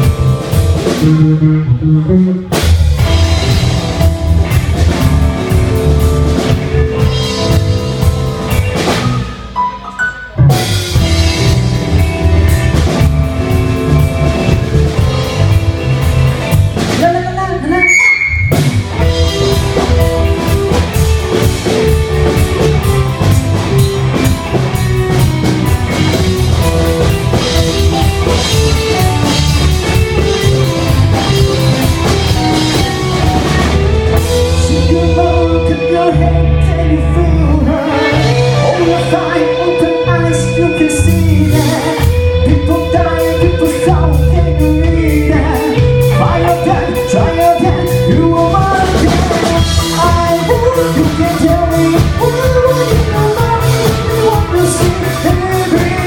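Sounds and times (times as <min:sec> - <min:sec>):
rock band playing live: 0:00.0 - 0:56.0
high gliding tone: 0:17.7 - 0:20.4.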